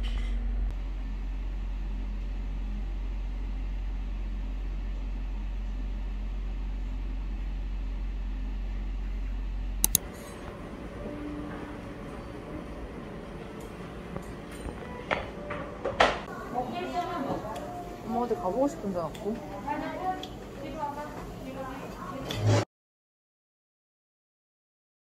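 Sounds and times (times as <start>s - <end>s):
low motor hum: 0.0s - 20.9s
sharp clicks: 9.8s - 10.0s.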